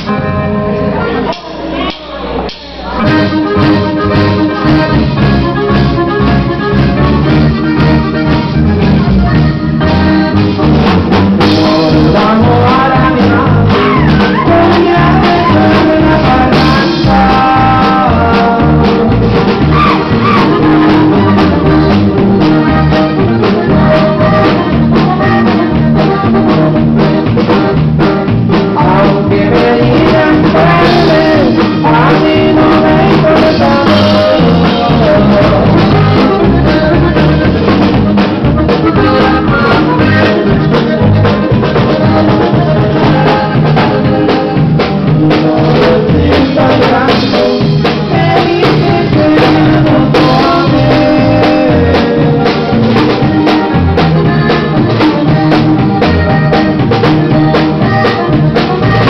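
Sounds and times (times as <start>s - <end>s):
accordion melody: 0.0s - 59.0s
band drums bass and guitar: 0.0s - 59.0s.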